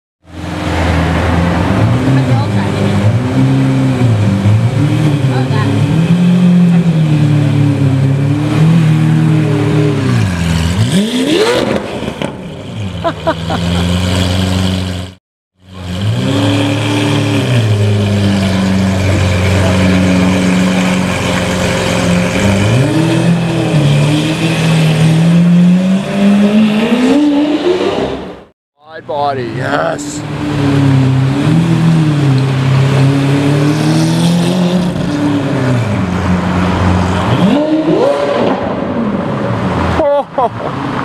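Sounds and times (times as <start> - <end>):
sports car engine revving: 0.4 - 15.1, 15.7 - 28.4, 29.7 - 40.0.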